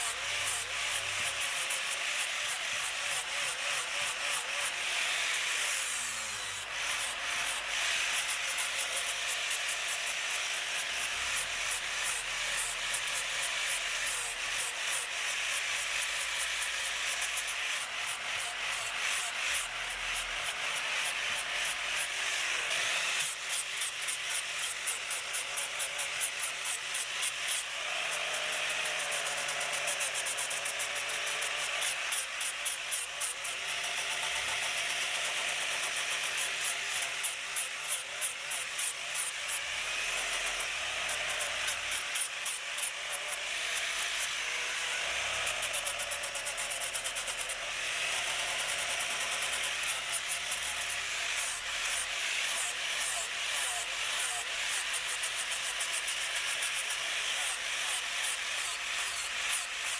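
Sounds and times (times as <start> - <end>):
power sander scratching wood: 0.0 - 8.2
electric sander on wood: 0.0 - 9.0, 13.2 - 55.2.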